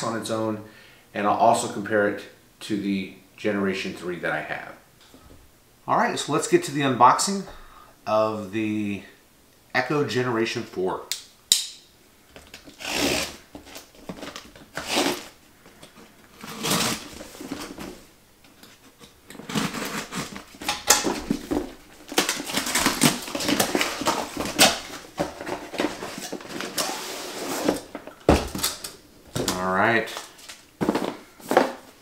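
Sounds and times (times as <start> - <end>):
knife slitting packing tape: 12.6 - 13.8, 14.7 - 15.3, 16.4 - 17.1, 19.4 - 21.0
cardboard box scraping and rustling: 16.4 - 18.0, 19.4 - 20.6, 22.4 - 28.0.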